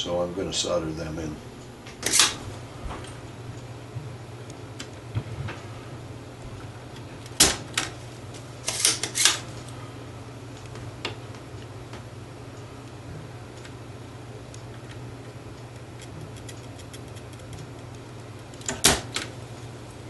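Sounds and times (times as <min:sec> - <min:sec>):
low steady hum: 0:00.0 - 0:20.0
desoldering pump snapping: 0:01.8 - 0:05.7, 0:06.3 - 0:09.8, 0:14.4 - 0:19.7
tool handling ticks: 0:15.6 - 0:18.8.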